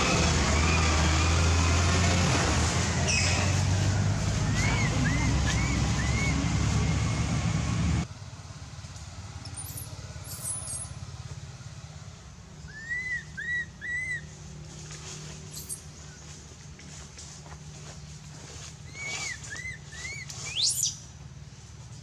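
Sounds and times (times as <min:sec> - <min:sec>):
whistled calls: 0:03.0 - 0:03.5, 0:04.4 - 0:07.5, 0:09.5 - 0:11.0, 0:12.6 - 0:14.4, 0:18.8 - 0:21.1
high thin chirps: 0:09.5 - 0:11.0.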